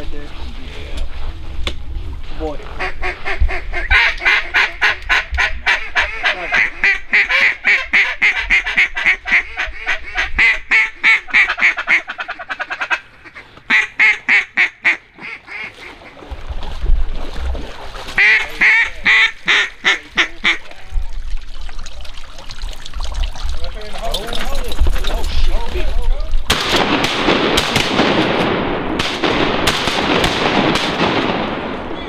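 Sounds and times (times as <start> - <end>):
duck call quacks: 2.8 - 16.2, 18.2 - 20.7.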